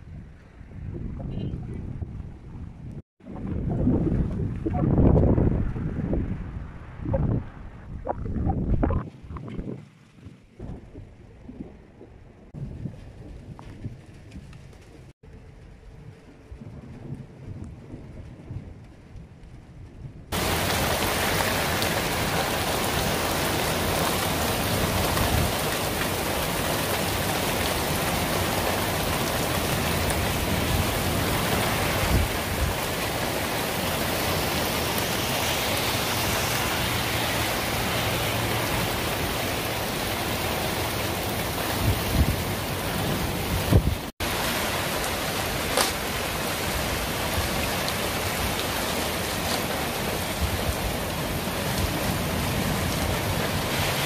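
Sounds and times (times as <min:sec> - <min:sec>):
low bumps: 0:00.0 - 0:20.4
heavy rain pouring: 0:20.2 - 0:54.0.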